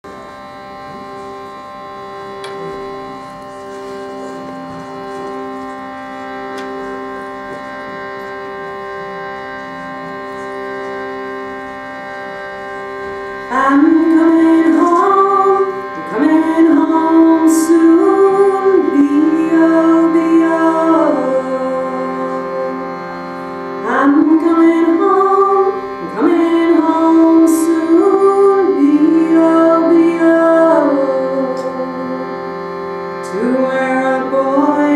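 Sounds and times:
shruti box drone: 0.0 - 34.9
woman singing slow melody: 13.5 - 22.8, 23.8 - 32.4, 33.2 - 34.9.

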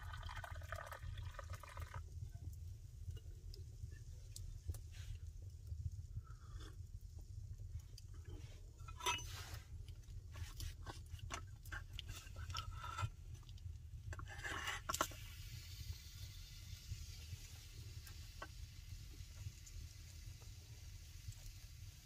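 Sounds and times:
steady low rumble: 2.1 - 10.4.

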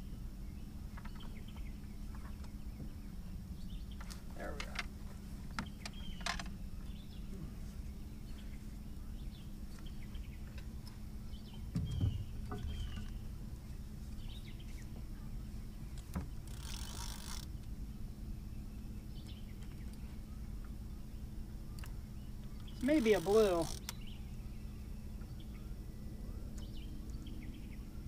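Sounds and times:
steady low hum: 0.0 - 28.0
dull thump: 11.7 - 13.2.

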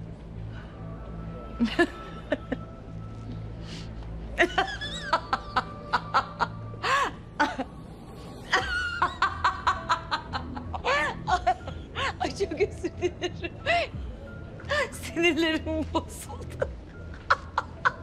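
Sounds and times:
quiet background music: 0.0 - 18.0
woman laughing: 1.6 - 2.6, 4.4 - 7.8, 8.4 - 13.9, 14.7 - 18.0.

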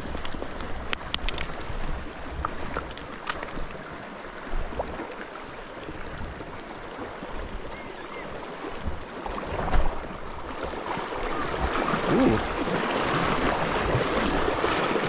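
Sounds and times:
person wading through water: 0.0 - 15.0
river rushing over stones: 0.0 - 15.0.

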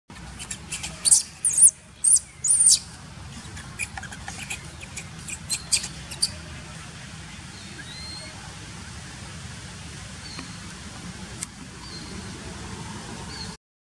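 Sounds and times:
baby monkey squealing: 0.2 - 6.4.

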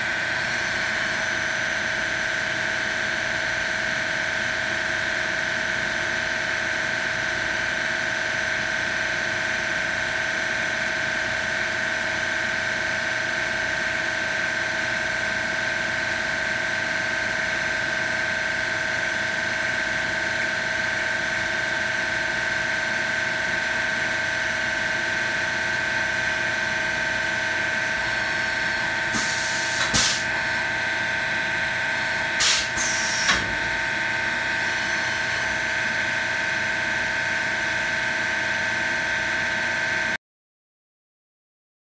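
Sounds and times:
machine high-pitched whine: 0.0 - 5.3, 15.4 - 40.1
machine noise bursts: 32.4 - 33.7.

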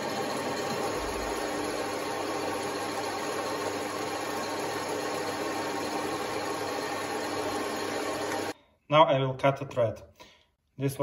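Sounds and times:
metal lathe motor humming: 0.0 - 8.6.

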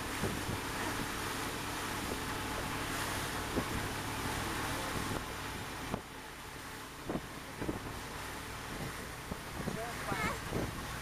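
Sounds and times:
wind on microphone: 0.0 - 1.3, 3.4 - 4.0, 7.0 - 8.0, 8.6 - 11.0
outboard motor running: 0.0 - 11.0
water rushing past hull: 0.0 - 11.0.

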